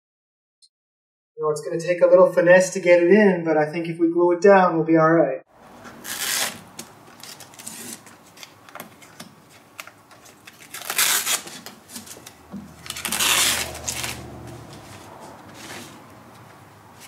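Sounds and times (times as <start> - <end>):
tape being peeled off: 5.8 - 16.1.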